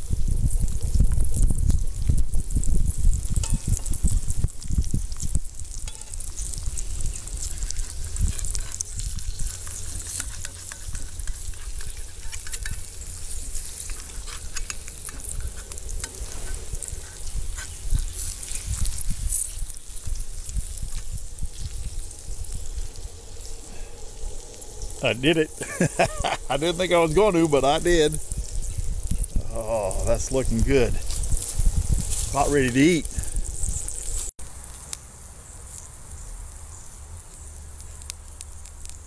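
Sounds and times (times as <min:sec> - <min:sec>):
eggs sizzling in a skillet: 0:00.0 - 0:39.0
metal spatula scraping a pan: 0:05.7 - 0:19.6.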